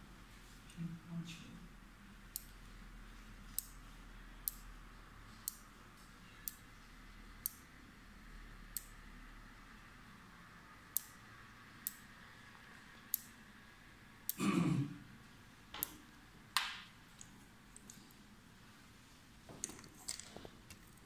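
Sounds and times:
small switch clicking: 2.3s - 2.6s, 4.5s - 4.7s, 8.7s - 9.0s, 10.9s - 11.2s.

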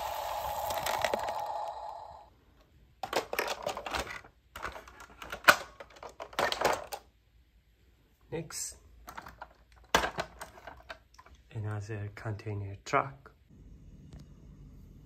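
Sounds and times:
steady hum: 0.0s - 2.3s
plastic toy trucks clattering: 3.0s - 7.1s, 9.0s - 11.4s.

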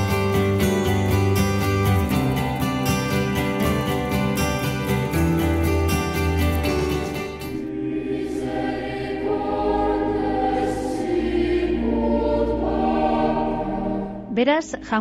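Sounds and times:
choir singing held chords: 7.0s - 14.4s.

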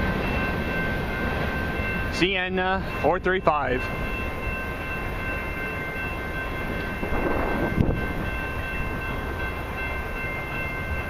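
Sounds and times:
freight train rumble: 0.0s - 11.0s.

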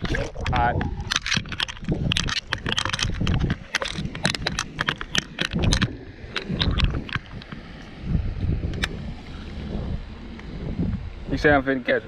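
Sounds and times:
fishing reel clicks and knocks: 0.0s - 7.5s
wind rumble on microphone: 0.0s - 12.0s.

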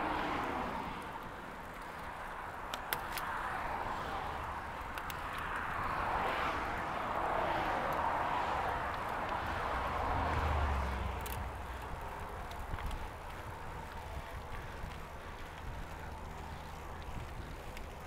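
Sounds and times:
passing car tyre noise: 0.0s - 18.0s.

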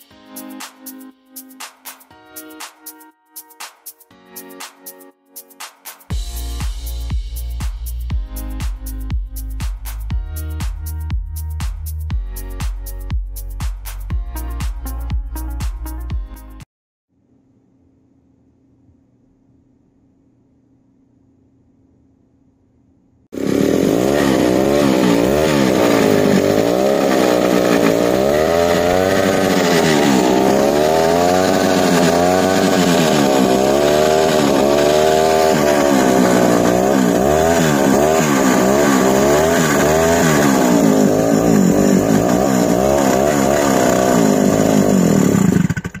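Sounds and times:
two-stroke engine running: 23.4s - 46.0s.

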